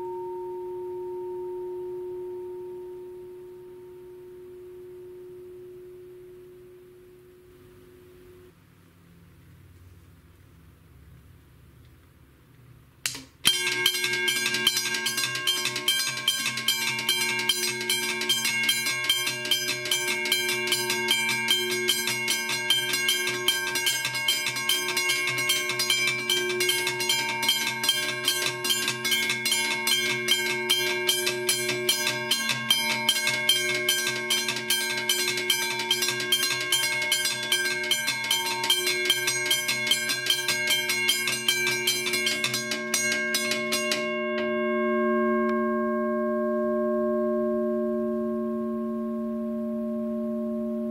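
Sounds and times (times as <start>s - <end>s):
railroad crossing bells ringing: 13.5s - 45.8s.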